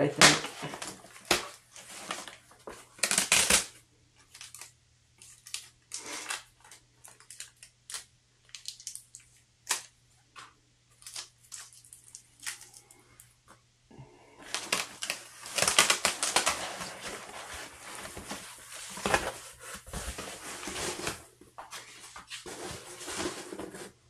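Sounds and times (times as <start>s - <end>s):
foam packaging rustling: 0.4s - 9.8s, 14.4s - 24.0s.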